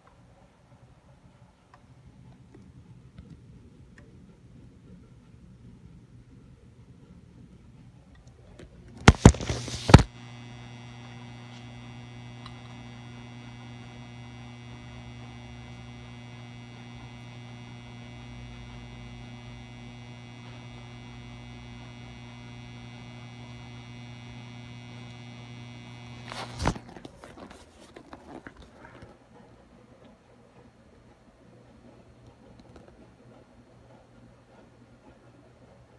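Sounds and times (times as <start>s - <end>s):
sharp clicks: 9.0s - 26.8s
lamp ballast humming: 9.0s - 26.9s.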